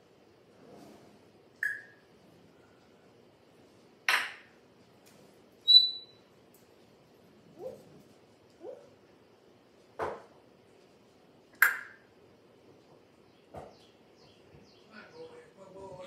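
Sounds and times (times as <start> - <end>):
parrot whistling: 5.6 - 6.2.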